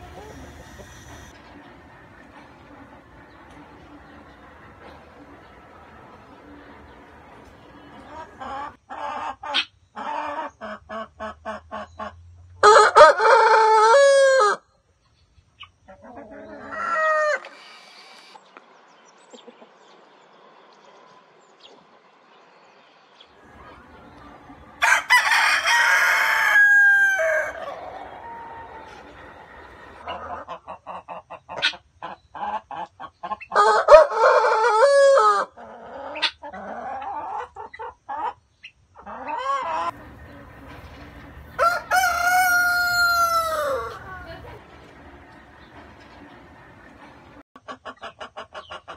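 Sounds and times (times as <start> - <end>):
chickens clucking: 0.0 - 12.1, 15.6 - 17.6, 19.3 - 19.9, 23.4 - 34.3, 35.2 - 48.9
rooster crowing: 12.6 - 14.6, 16.5 - 17.5, 23.5 - 30.0, 33.6 - 35.5, 39.5 - 44.6.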